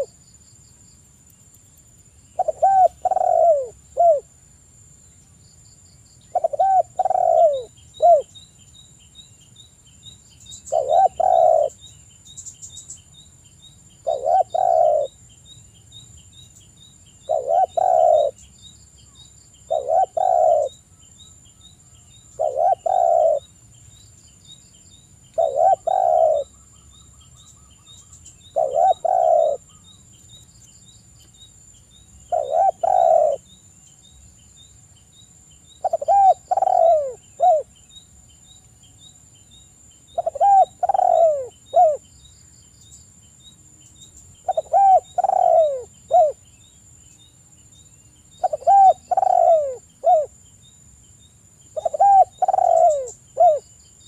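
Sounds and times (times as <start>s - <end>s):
dove cooing: 2.4s - 4.3s, 6.3s - 8.3s, 10.7s - 11.8s, 14.0s - 15.2s, 17.3s - 18.4s, 19.7s - 20.8s, 22.4s - 23.5s, 25.4s - 26.5s, 28.5s - 29.8s, 32.3s - 33.4s, 35.8s - 37.7s, 40.2s - 42.0s, 44.4s - 46.4s, 48.4s - 50.3s, 51.8s - 53.6s.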